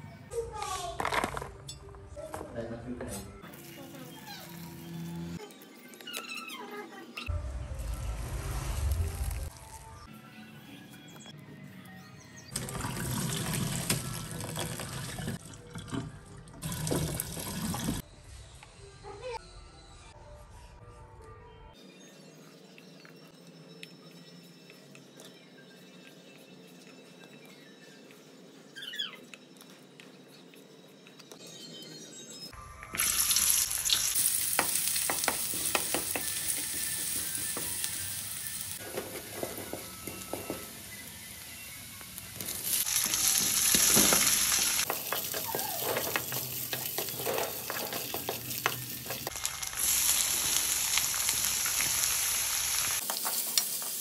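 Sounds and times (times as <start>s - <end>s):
onion frying in oil: 7.8s - 9.8s, 12.6s - 15.4s, 32.9s - 54.0s
water pouring into colander: 12.6s - 18.0s.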